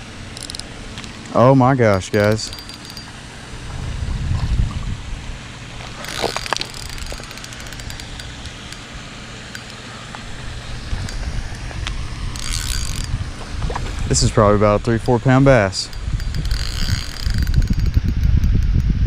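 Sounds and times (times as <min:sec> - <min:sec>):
fishing reel clicking: 0:00.3 - 0:03.3, 0:06.0 - 0:11.7, 0:12.3 - 0:13.2, 0:14.0 - 0:18.9
wind rumbling on microphone: 0:02.1 - 0:08.8, 0:10.2 - 0:19.0.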